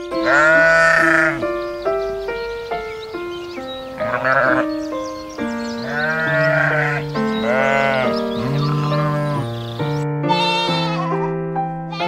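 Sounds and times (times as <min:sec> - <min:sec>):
gentle background music: 0:00.0 - 0:12.0
sheep bleating: 0:00.2 - 0:01.5, 0:04.0 - 0:04.7, 0:05.8 - 0:11.3.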